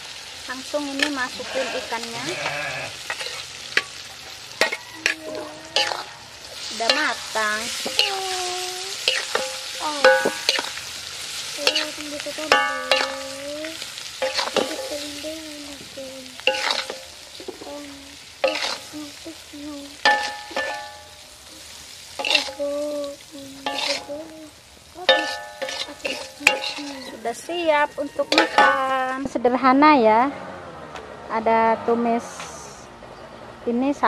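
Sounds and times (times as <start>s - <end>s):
sizzling: 0.0s - 30.2s
metal spatula scraping frying pan: 0.8s - 19.2s, 20.0s - 24.3s, 25.0s - 29.1s
sharp strikes on pan ringing: 9.0s - 10.8s, 12.5s - 13.4s, 20.0s - 21.2s, 25.1s - 27.1s.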